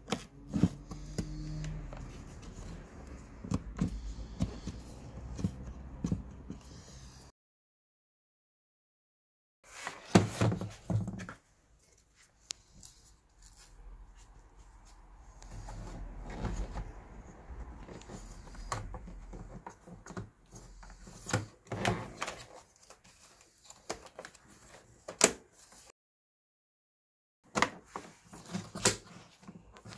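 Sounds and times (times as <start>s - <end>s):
plastic parts knocking and rattling: 10.0s - 11.4s.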